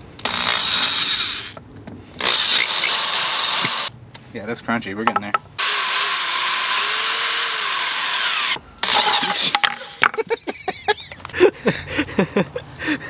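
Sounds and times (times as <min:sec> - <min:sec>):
power drill grinding: 0:00.2 - 0:01.6, 0:02.2 - 0:03.9, 0:05.6 - 0:10.1
clicks and knocks: 0:05.0 - 0:05.5.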